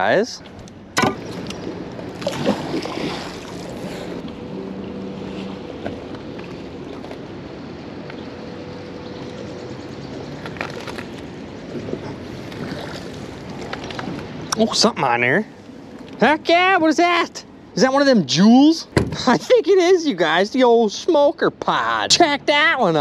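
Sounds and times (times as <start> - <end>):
faint steady hum: 0.0 - 23.0
water noise: 0.0 - 23.0
wind: 0.0 - 23.0
magnet splashing into water: 2.2 - 3.7.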